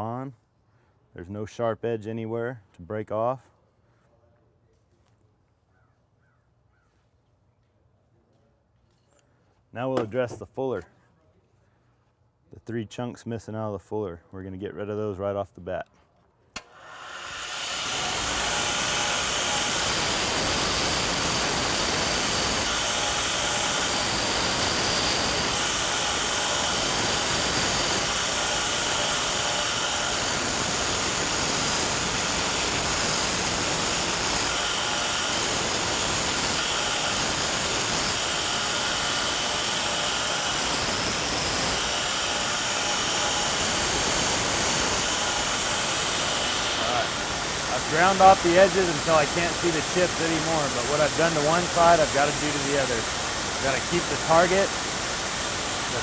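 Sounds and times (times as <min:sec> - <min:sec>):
power grinder grinding steel: 0:16.6 - 0:56.0.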